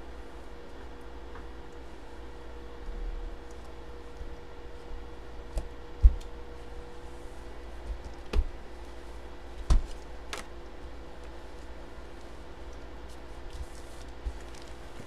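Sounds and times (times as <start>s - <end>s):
faint steady hum: 0.0s - 15.0s
plastic bag knocks and crinkles: 9.6s - 10.5s
plastic bag rustle: 13.6s - 15.0s.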